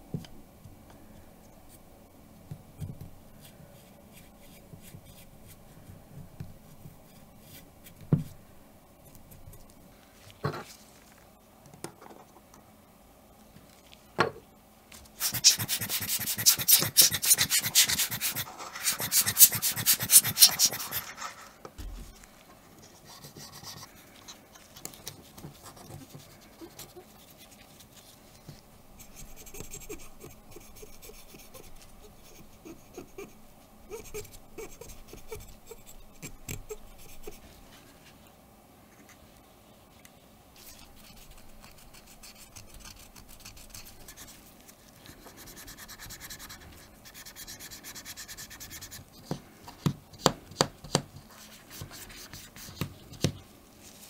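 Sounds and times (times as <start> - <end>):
cotton swab scrubbing metal: 15.2 - 21.3.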